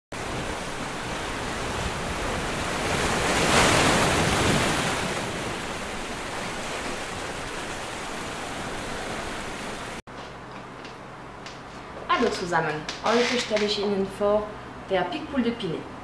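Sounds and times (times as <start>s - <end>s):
sea surf washing onto beach: 0.1s - 10.0s.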